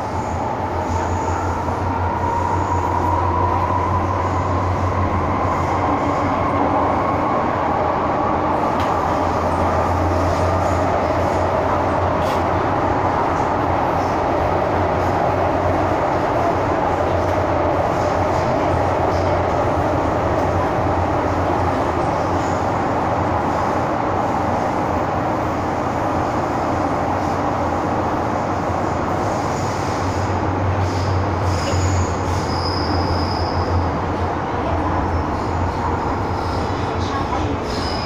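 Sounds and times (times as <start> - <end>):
high squeal: 30.9 - 33.8.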